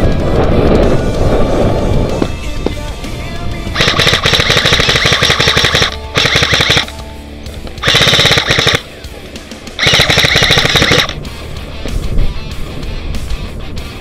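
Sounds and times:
airsoft rifle full-auto bursts: 3.8s - 7.0s, 7.8s - 8.9s, 9.8s - 11.2s.

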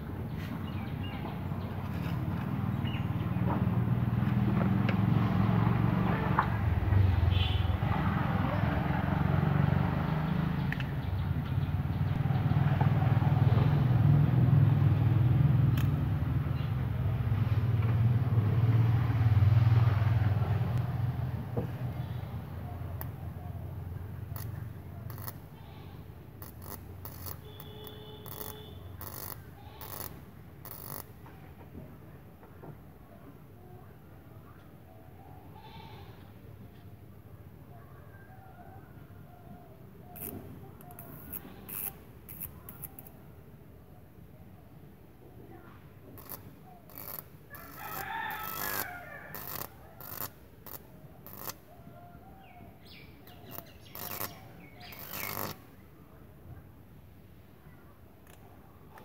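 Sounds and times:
sharp electrical crackles: 24.2s - 31.2s, 46.2s - 51.7s, 53.3s - 55.7s
rooster crowing: 38.1s - 39.7s, 47.0s - 50.3s.

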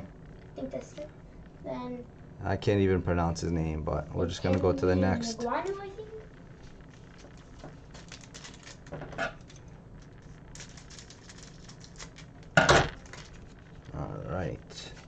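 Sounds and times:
cards clicking and rustling: 7.2s - 13.6s.

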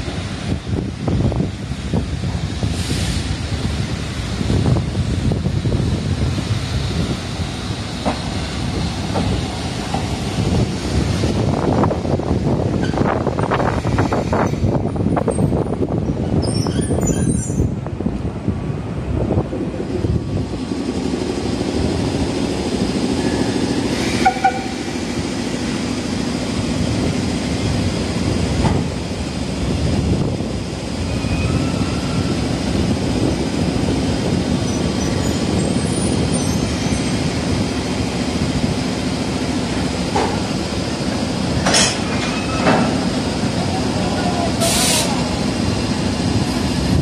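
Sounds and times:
locomotive low running rumble: 0.0s - 47.0s
high squeak: 16.4s - 17.7s.

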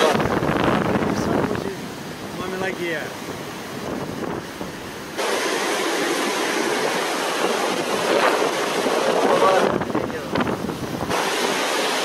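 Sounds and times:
loud rushing noise: 0.0s - 12.0s.

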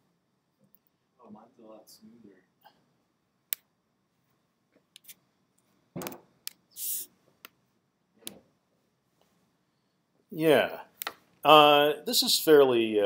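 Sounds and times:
short hiss: 6.7s - 7.1s.

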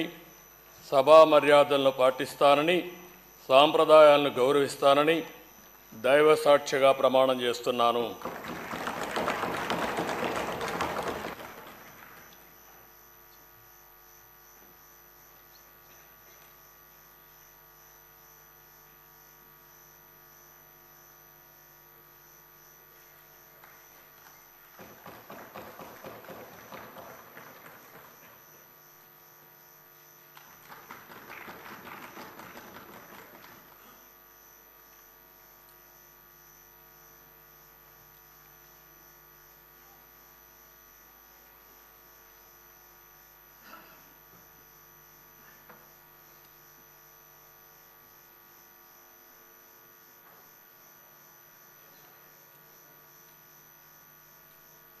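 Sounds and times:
steady electrical hum: 0.0s - 55.0s
applause: 7.9s - 12.5s, 24.8s - 28.4s, 30.4s - 33.8s.

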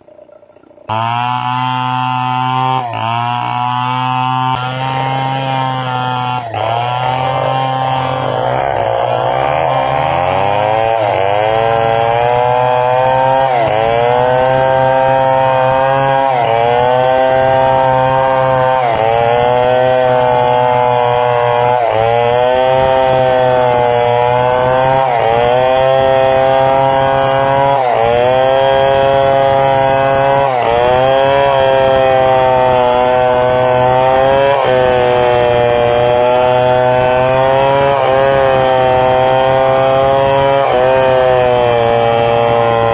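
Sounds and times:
chainsaw cutting wood: 0.0s - 42.9s.

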